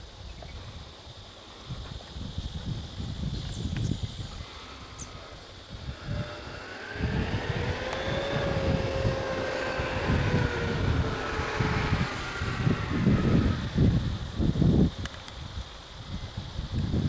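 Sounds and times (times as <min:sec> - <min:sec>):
irregular low rumble: 0:04.3 - 0:15.1
vehicle engine running: 0:04.3 - 0:15.1.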